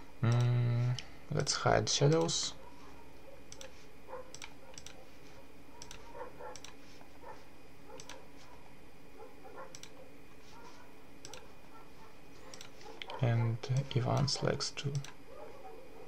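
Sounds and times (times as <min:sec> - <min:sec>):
faint steady hum: 0:00.0 - 0:16.0
computer mouse clicking: 0:01.4 - 0:02.4, 0:03.5 - 0:05.0, 0:05.8 - 0:06.8, 0:07.9 - 0:08.2, 0:09.6 - 0:10.0, 0:11.2 - 0:11.5, 0:12.5 - 0:15.2.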